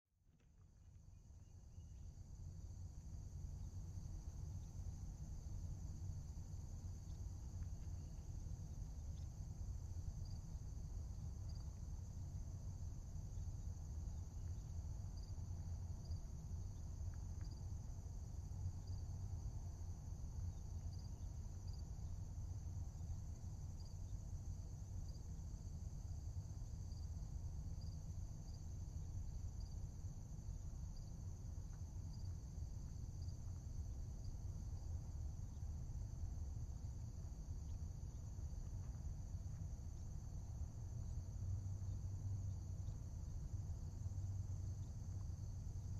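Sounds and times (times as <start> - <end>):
insect chorus drone: 0.3 - 45.9.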